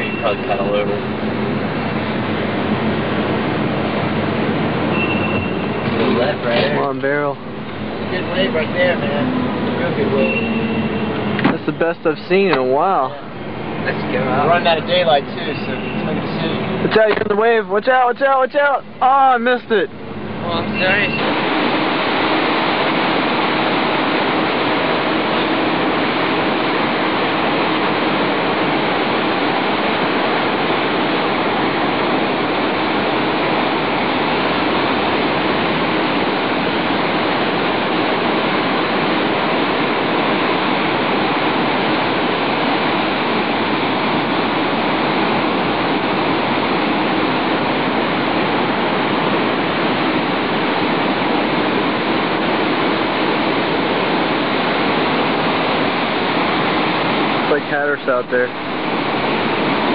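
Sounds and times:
ocean surf roaring: 0.0 - 59.9.

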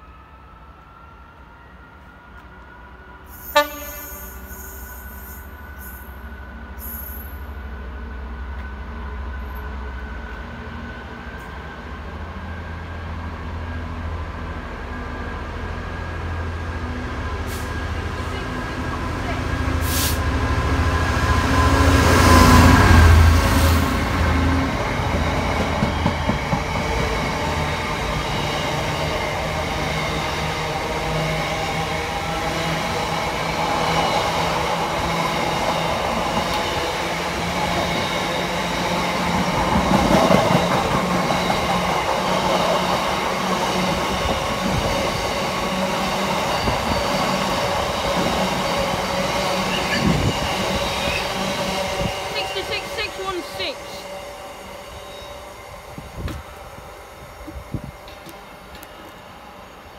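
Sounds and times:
diesel locomotive passing: 0.0 - 59.9
train wagons rolling on track: 14.8 - 59.9.

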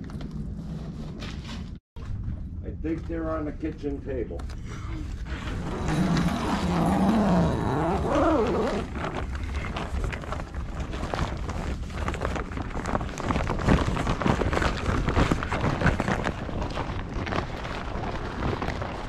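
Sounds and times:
zipper being pulled open: 5.3 - 11.7
canvas rustling and scuffing: 5.5 - 19.0.

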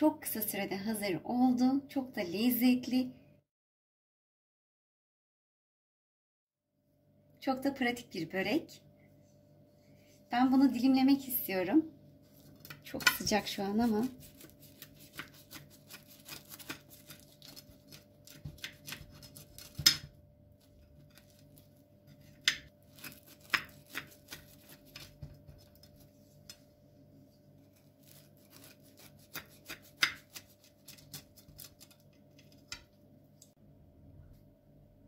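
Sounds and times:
knife crunching through crisp pastry: 14.0 - 26.1, 27.7 - 32.8.

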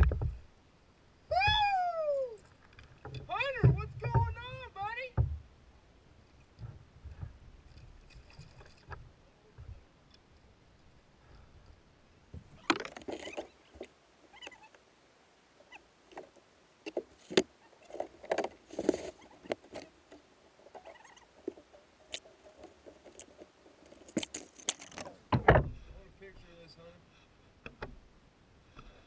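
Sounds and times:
fishing tackle knocking and rattling: 12.6 - 13.9, 16.9 - 25.7.

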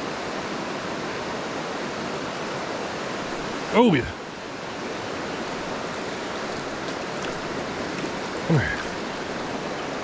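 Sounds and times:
creek running over rocks: 0.0 - 10.0.

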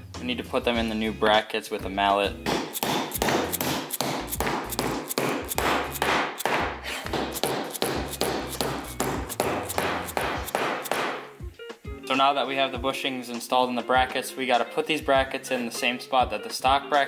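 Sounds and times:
mallet striking bushings: 2.4 - 11.4.

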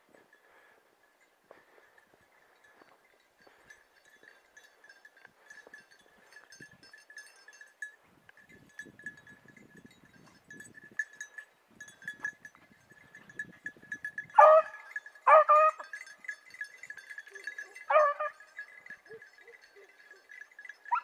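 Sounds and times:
dog baying: 14.4 - 15.8, 17.3 - 18.4.

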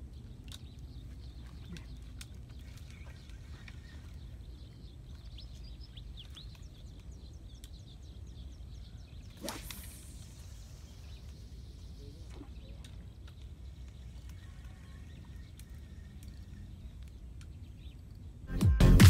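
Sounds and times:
fishing rod swish: 9.3 - 11.0.

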